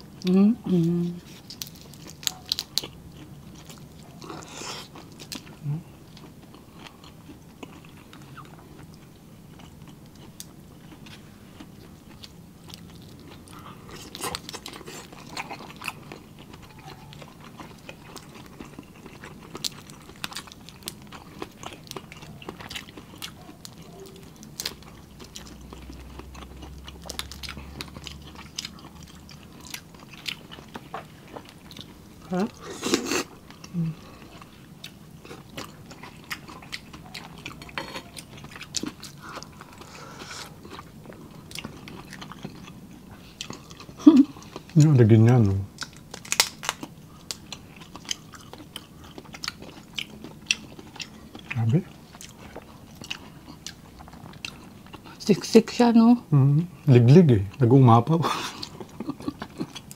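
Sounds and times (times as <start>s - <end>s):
chewing and crunching: 0.0s - 55.7s, 56.8s - 59.9s
shrimp shells cracking when peeled: 45.8s - 47.5s.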